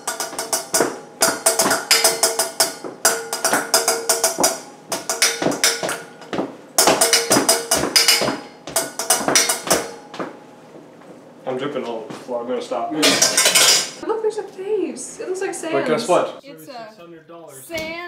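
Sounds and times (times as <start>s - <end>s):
spoon drumming on metal bowl: 0.0s - 10.3s, 13.0s - 14.0s.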